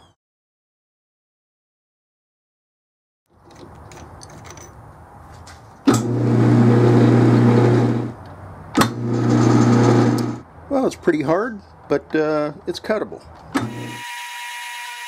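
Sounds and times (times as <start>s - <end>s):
lathe cutting steel: 5.9s - 8.1s, 8.8s - 10.4s, 13.6s - 15.0s.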